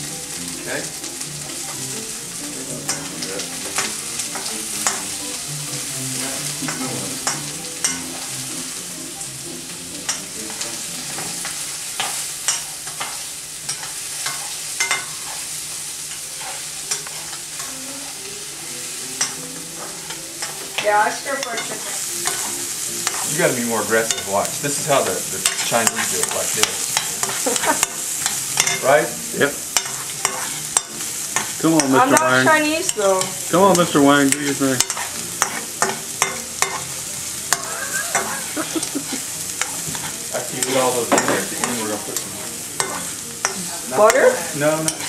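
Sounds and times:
vegetables sizzling in a wok: 0.0 - 45.0.

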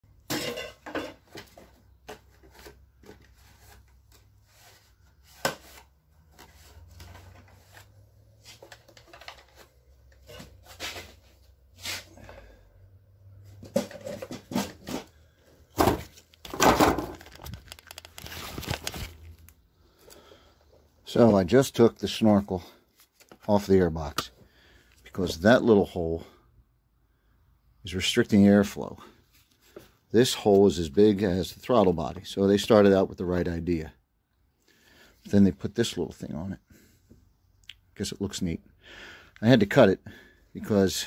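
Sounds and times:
plastic tearing and scraping: 15.9 - 19.6.

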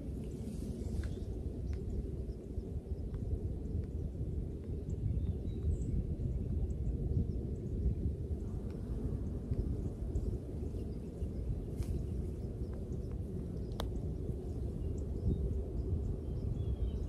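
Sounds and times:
low outdoor rumble: 0.0 - 17.0
faint ticks: 1.0 - 1.9, 12.7 - 14.0.

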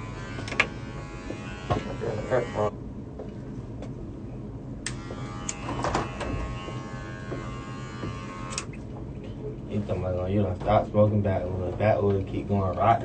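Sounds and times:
electric hair clippers buzzing: 0.0 - 2.7, 4.9 - 8.8.

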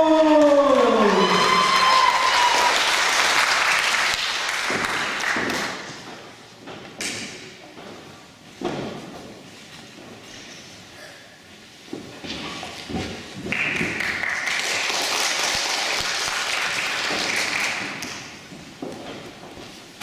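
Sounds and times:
audience applause: 0.4 - 5.8, 13.5 - 18.0.

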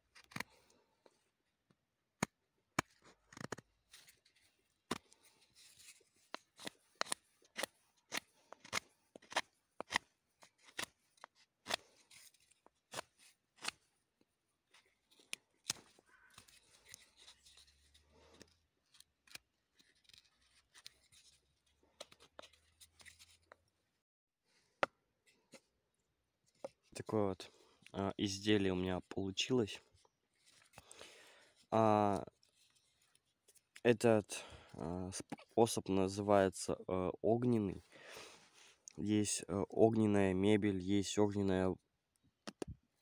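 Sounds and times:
knife slicing dry wood: 0.1 - 0.6, 2.2 - 13.9.

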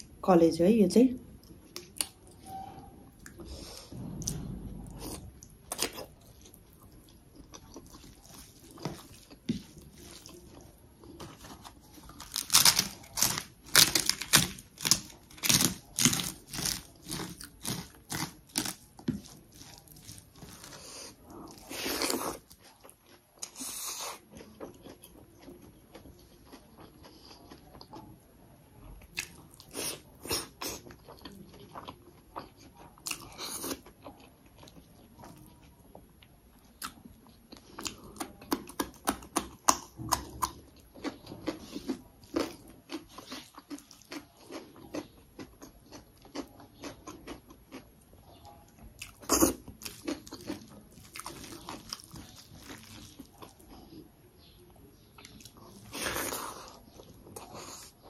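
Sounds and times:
person chewing and biting: 4.3 - 28.0, 36.8 - 47.9, 49.0 - 53.9.

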